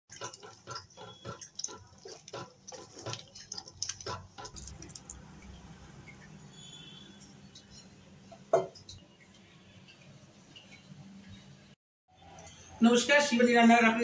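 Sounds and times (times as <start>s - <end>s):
spoon scraping frying pan: 0.1s - 4.9s.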